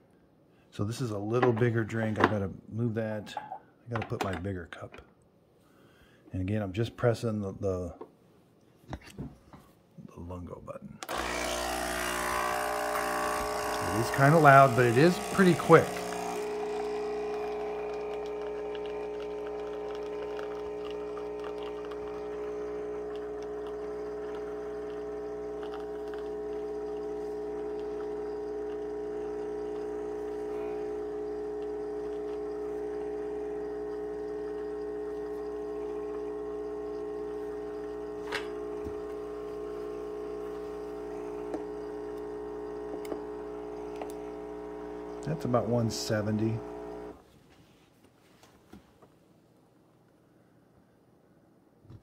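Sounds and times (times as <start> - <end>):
espresso machine pump humming: 11.0 - 47.2
coffee streaming into glass cup: 11.2 - 47.2.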